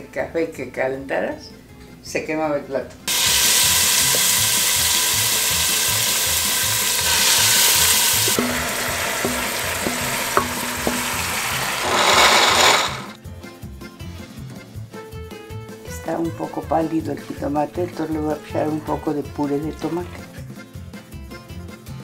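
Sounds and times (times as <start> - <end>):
meat sizzling in a pot: 3.1 - 13.2
herb mixture poured in: 6.9 - 13.2
wooden spoon knocking pot: 8.3 - 13.1.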